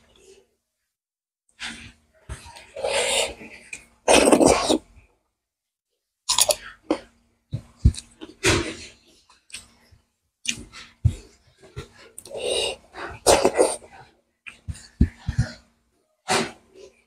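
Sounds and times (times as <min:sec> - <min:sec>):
noisy slurping: 0:01.6 - 0:04.8, 0:10.4 - 0:15.6.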